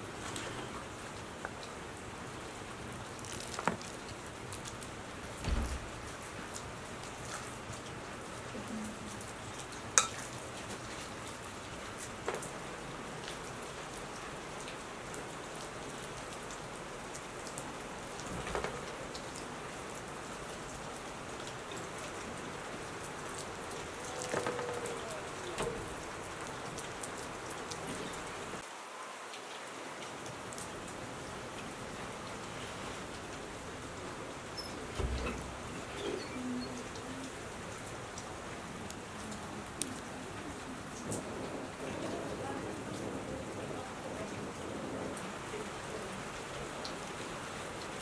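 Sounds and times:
steady rain falling: 0.0s - 48.0s.

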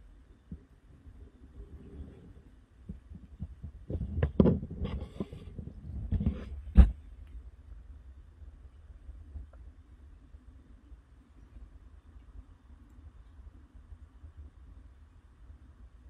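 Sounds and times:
low thumping rumble: 0.4s - 10.0s
rustles and knocks: 1.9s - 7.4s.

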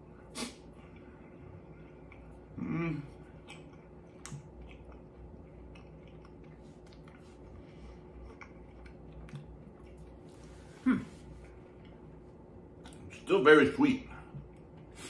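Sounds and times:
person chewing: 0.4s - 12.1s
person humming: 2.6s - 3.2s, 10.8s - 11.2s.

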